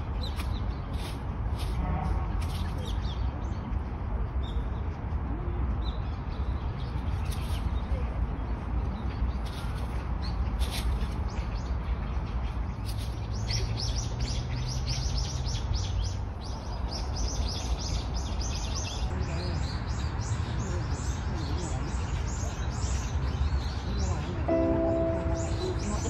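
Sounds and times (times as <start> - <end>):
birds chirping: 5.8 - 26.0.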